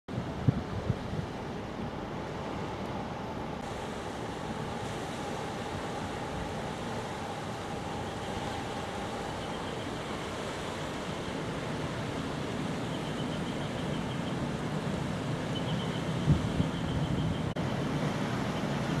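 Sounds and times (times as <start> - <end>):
churning water: 0.1 - 19.0
faint machinery hum: 0.2 - 19.0
wind rushing: 3.6 - 12.9.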